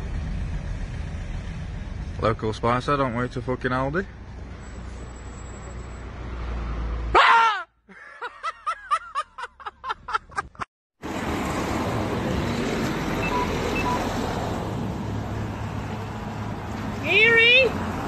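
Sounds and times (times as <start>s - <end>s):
street traffic rumble: 0.0s - 18.0s
person shouting: 7.1s - 7.8s, 17.0s - 17.8s
short beeps: 13.2s - 14.0s.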